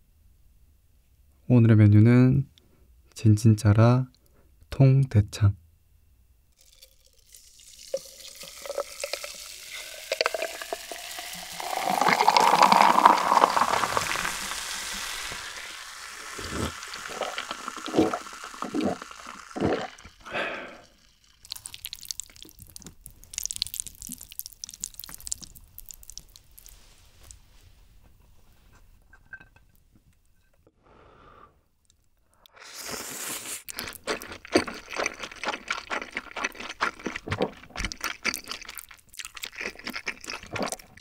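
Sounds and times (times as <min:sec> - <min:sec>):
cola poured into a glass: 0:06.6 - 0:26.7, 0:33.8 - 0:41.0
drink fizzing: 0:06.6 - 0:26.8
gulping: 0:16.3 - 0:21.0.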